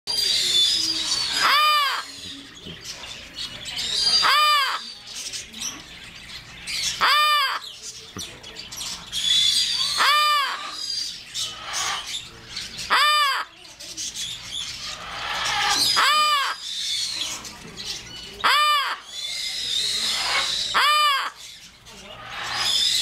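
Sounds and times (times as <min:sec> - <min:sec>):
parrot cawing: 0:01.2 - 0:02.1, 0:04.1 - 0:04.9, 0:07.0 - 0:07.7, 0:09.8 - 0:10.8, 0:12.8 - 0:13.6, 0:15.0 - 0:16.7, 0:18.4 - 0:19.2, 0:20.0 - 0:21.4.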